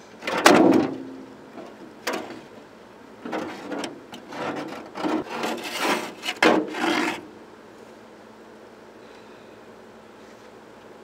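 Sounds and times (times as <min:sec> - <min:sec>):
scraping against sheet metal: 0:03.2 - 0:07.3.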